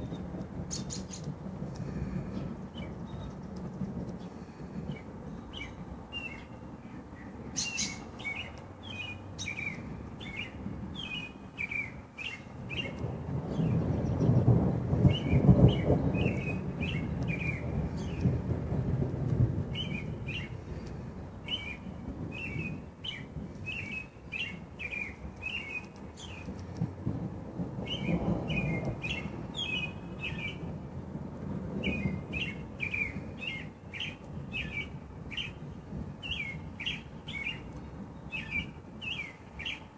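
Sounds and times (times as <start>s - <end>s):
bird chirping: 0.0s - 1.3s, 7.2s - 14.5s, 31.8s - 35.6s, 36.2s - 39.9s
distant thunder rumbling: 0.0s - 39.9s.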